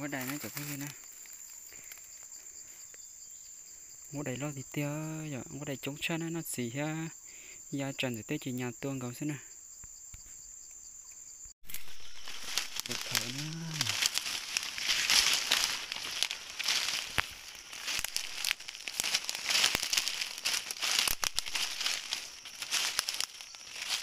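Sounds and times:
dense crackling and rustling: 11.6 - 24.0.

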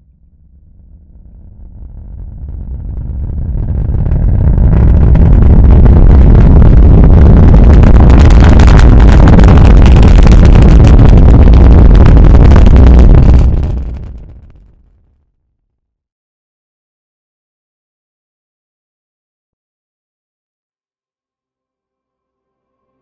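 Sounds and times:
rocket engine rumble: 0.0 - 15.0.

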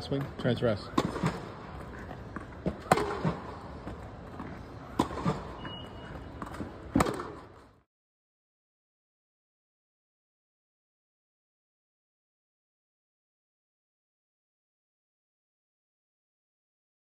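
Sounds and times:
tennis balls bouncing on hard court: 0.0 - 7.7
tennis balls hit with rackets: 0.0 - 7.8.

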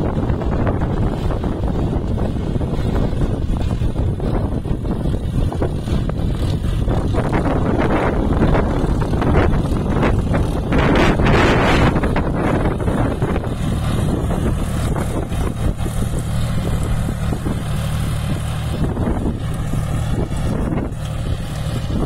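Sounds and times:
tractor diesel engine under load: 0.0 - 22.0.

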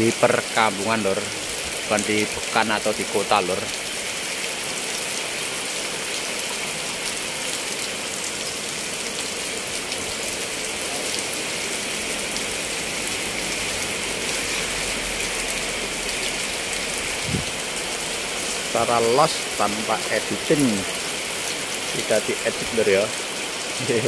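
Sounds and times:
rain on canvas awning: 0.0 - 24.0
rain on wet street: 0.0 - 24.0.

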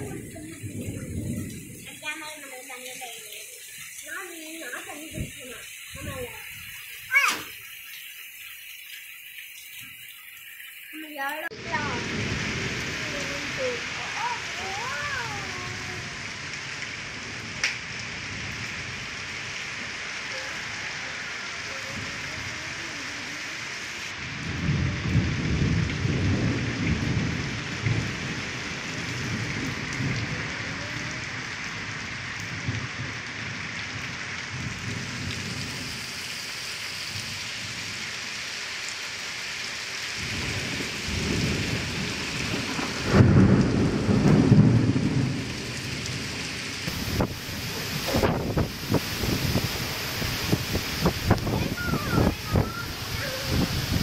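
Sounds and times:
rolls of thunder: 0.0 - 2.0, 11.6 - 13.5, 24.2 - 35.8, 40.2 - 54.0
running water: 0.0 - 24.2, 33.3 - 54.0
heavy rain pouring: 0.0 - 54.0.

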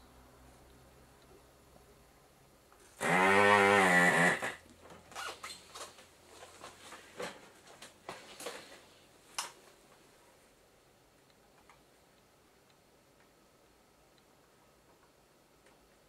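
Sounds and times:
desoldering pump motor buzz: 3.0 - 4.6.

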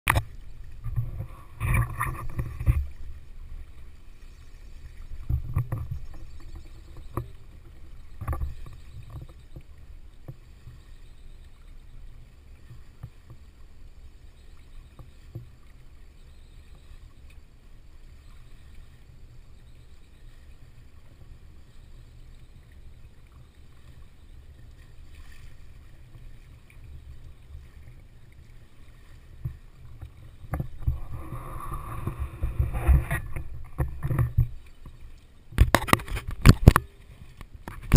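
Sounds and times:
water washing along hull: 0.1 - 37.9
wind noise on microphone: 30.5 - 34.6, 35.6 - 37.9.

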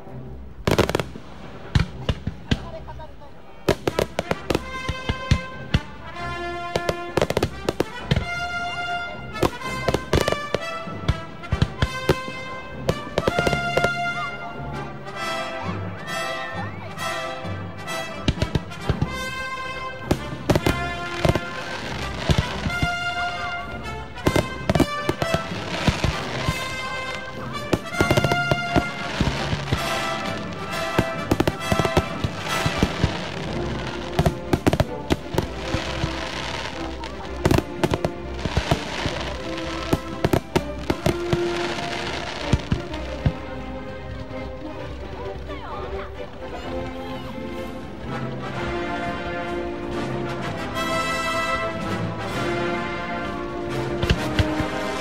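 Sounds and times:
music with sustained tones: 0.0 - 55.0
fireworks shells bursting: 24.2 - 42.9.

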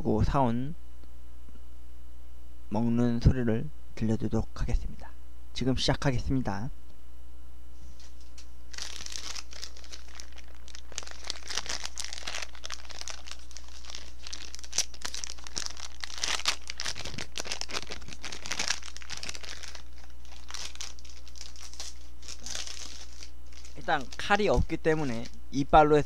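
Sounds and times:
plastic film crinkling: 8.0 - 25.4.

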